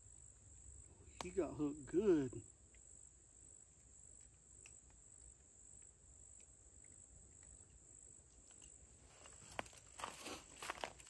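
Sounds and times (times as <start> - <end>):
soft rustling: 9.0 - 11.0.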